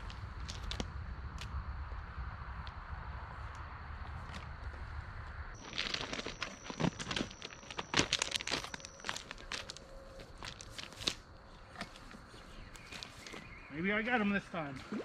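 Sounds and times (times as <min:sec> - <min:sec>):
footsteps on gravel: 0:05.6 - 0:13.6.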